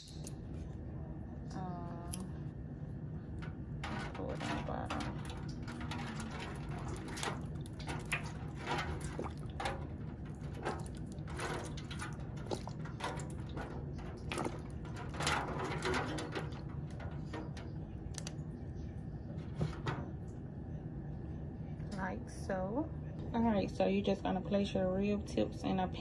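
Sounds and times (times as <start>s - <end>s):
liquid splashing onto foil: 3.4s - 18.4s.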